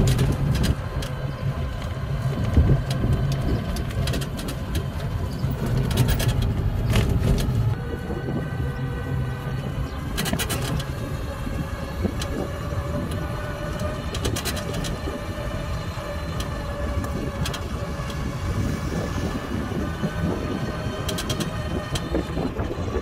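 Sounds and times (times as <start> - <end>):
rattling clicks: 0.0 - 7.8, 10.0 - 11.0, 12.0 - 19.2, 20.7 - 22.5
electric car driving: 0.0 - 23.0.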